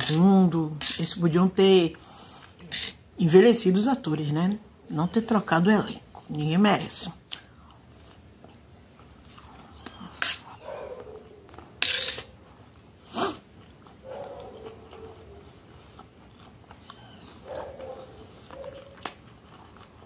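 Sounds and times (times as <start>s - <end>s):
metal spoon scraping metal plate: 0.0s - 1.2s, 2.7s - 3.0s, 10.2s - 10.4s, 11.8s - 12.3s
quiet chewing: 7.2s - 20.0s.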